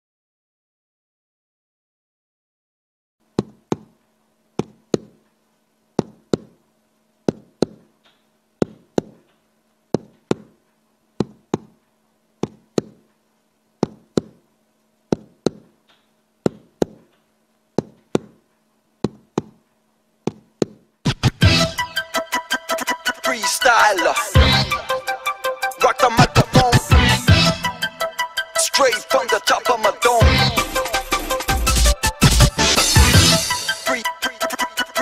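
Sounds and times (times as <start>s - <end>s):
paired thuds beat: 30.2s - 33.5s.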